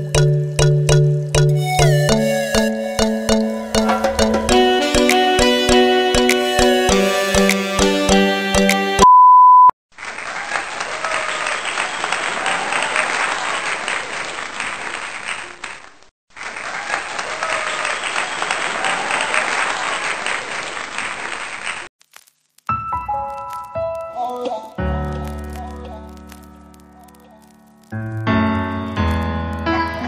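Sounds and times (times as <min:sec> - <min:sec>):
applause: 0:09.9 - 0:21.9.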